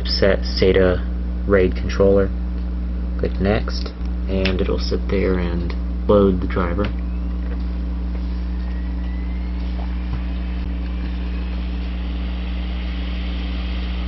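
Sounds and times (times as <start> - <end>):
low machine hum: 0.0 - 14.0
high whine rising in pitch: 4.8 - 14.0.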